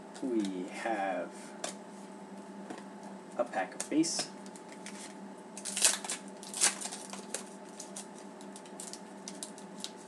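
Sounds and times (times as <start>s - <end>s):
foil wrapper crinkling: 4.5s - 10.0s.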